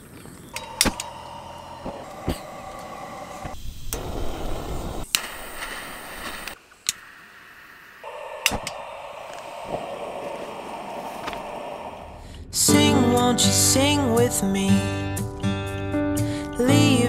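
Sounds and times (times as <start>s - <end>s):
burning gas hiss: 0.5s - 12.9s
igniter clicks: 0.6s - 4.1s.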